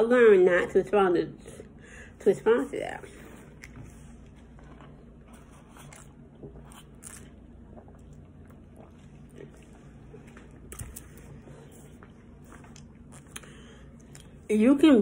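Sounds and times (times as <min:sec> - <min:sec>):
sips and swallows: 0:03.1 - 0:14.5.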